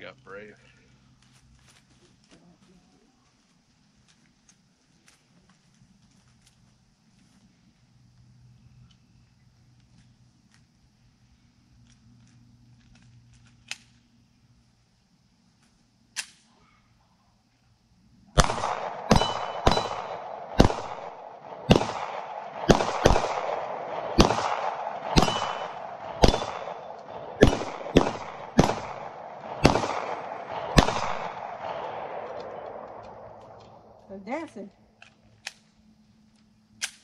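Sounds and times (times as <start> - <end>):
faint gunshot cracks: 18.4 - 33.6
pistol shots echoing: 18.4 - 34.0.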